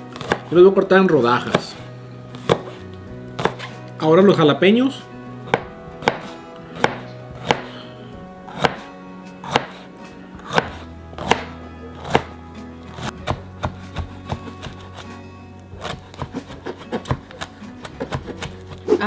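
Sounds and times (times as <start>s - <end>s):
light chopping of herbs: 1.4s - 2.8s, 3.4s - 3.7s, 5.5s - 7.7s, 10.4s - 15.2s, 15.8s - 19.0s
knife slicing on cutting board: 1.5s - 2.8s, 3.4s - 3.8s, 5.5s - 7.7s, 8.5s - 15.2s, 15.8s - 19.0s.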